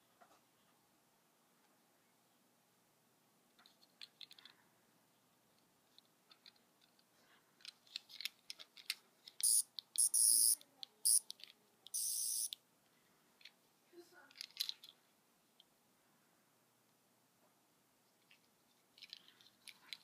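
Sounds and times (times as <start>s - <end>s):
plastic toy clicking: 7.6s - 12.6s, 14.3s - 15.0s.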